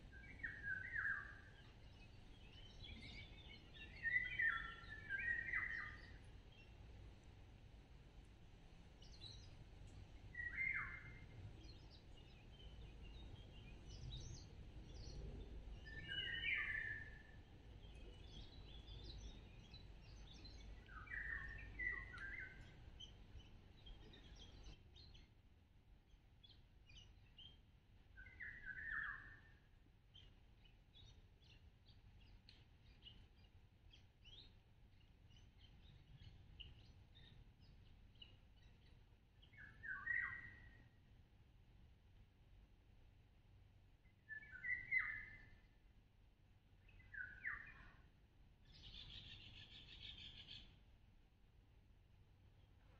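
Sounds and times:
faint high bird chirps: 0:00.1 - 0:06.8, 0:10.3 - 0:25.3, 0:26.4 - 0:41.0, 0:44.0 - 0:45.8, 0:46.8 - 0:50.9.

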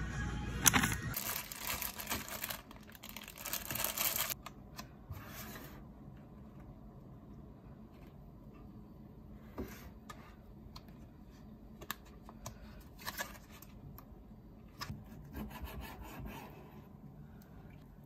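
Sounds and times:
plastic packet crinkling: 0:01.2 - 0:04.4.

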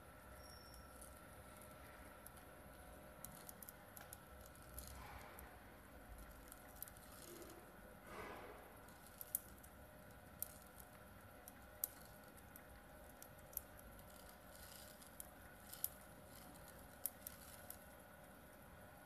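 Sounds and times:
pellets clicking on metal rollers: 0:06.1 - 0:18.0.

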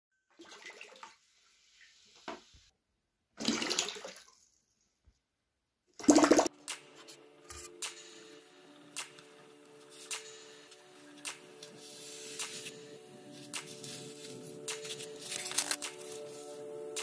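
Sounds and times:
water splashing in a plastic tub: 0:00.4 - 0:01.2, 0:03.4 - 0:04.6.

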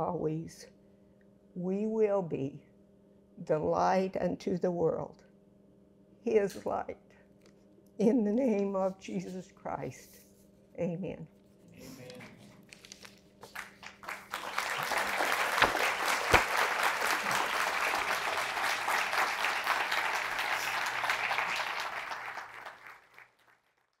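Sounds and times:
audience applauding: 0:13.4 - 0:23.9.

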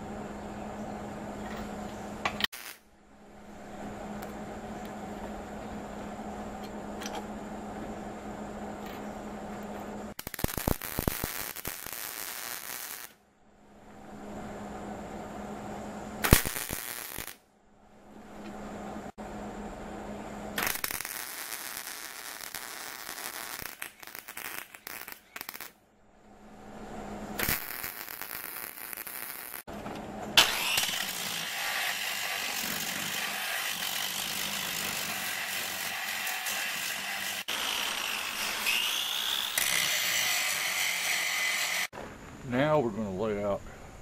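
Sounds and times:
arc welder crackling: 0:02.2 - 0:02.9, 0:09.6 - 0:13.2, 0:16.2 - 0:17.4, 0:20.5 - 0:25.8, 0:27.3 - 0:29.8, 0:30.4 - 0:41.9.

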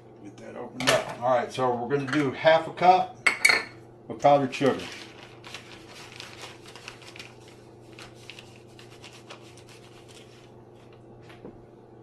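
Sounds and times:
cup scraping powdered sugar: 0:04.6 - 0:11.0
bag crinkling: 0:04.7 - 0:11.0.

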